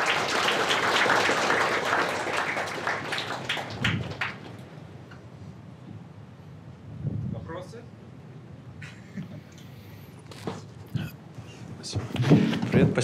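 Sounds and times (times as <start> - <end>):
audience applauding: 0.0 - 4.7.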